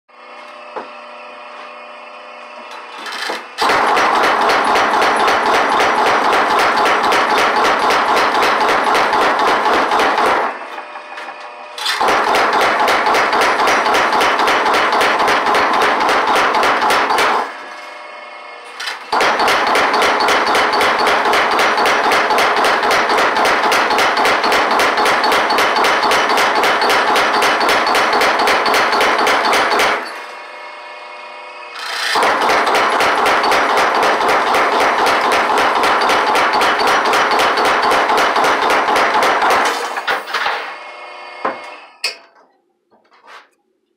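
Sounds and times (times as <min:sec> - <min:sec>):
power hammer pounding steel: 0:03.1 - 0:17.6, 0:18.9 - 0:30.3, 0:31.8 - 0:40.6.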